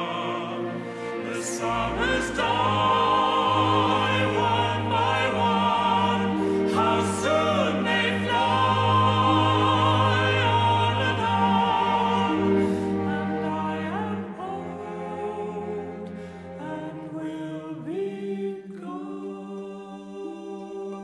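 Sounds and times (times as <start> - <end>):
male vocal quartet singing: 0.0 - 21.0.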